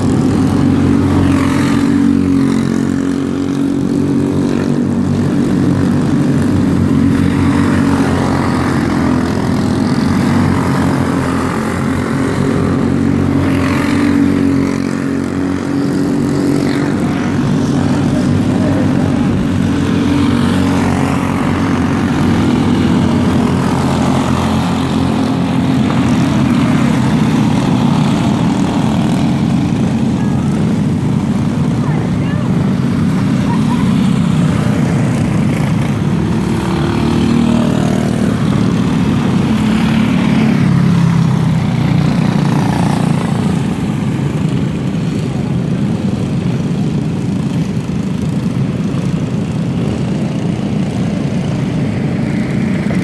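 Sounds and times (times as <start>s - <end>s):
racing kart engines droning: 0.0s - 53.0s.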